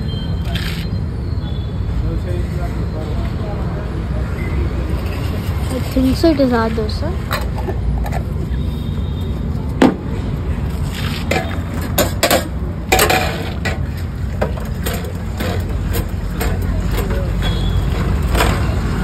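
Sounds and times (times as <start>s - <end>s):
pots and plates clinking: 11.3s - 19.0s.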